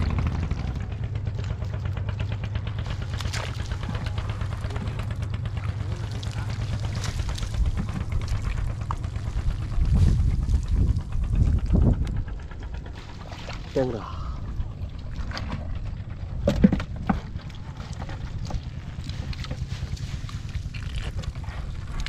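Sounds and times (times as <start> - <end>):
steady low rumble: 0.0 - 22.0
wet net clicks and crackles: 3.0 - 4.1, 18.4 - 22.0.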